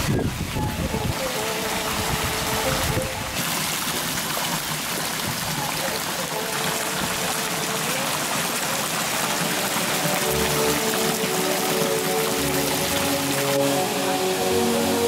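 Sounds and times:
fountain water splashing into pool: 0:00.0 - 0:15.0.

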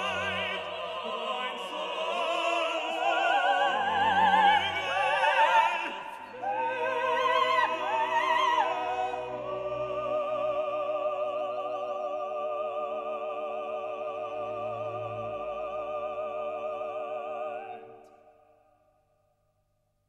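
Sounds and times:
operatic singing: 0:00.0 - 0:18.5.

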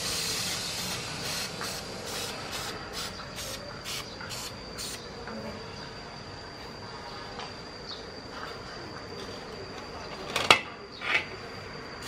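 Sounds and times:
aerosol can spraying: 0:00.0 - 0:05.0.

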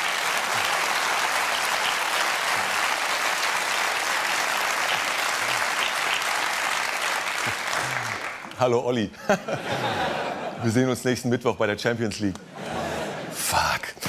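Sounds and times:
studio audience applauding: 0:00.0 - 0:08.7.

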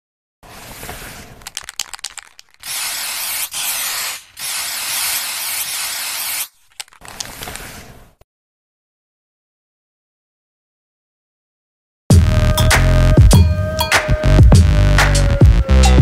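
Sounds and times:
spray can hissing: 0:00.6 - 0:06.8
spray can rattling clicks: 0:01.3 - 0:07.6.

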